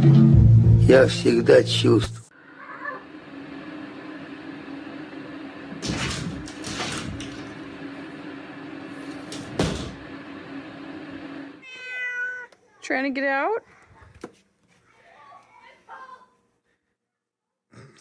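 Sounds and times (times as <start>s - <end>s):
steady low hum: 0.9s - 11.6s.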